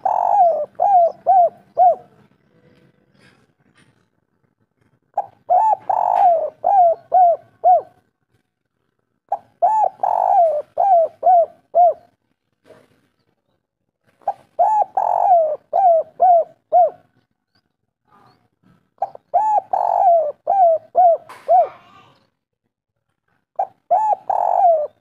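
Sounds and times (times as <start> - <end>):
dove cooing: 0.0 - 2.3, 5.1 - 8.0, 9.3 - 12.2, 14.2 - 17.2, 19.0 - 22.1, 23.6 - 25.0.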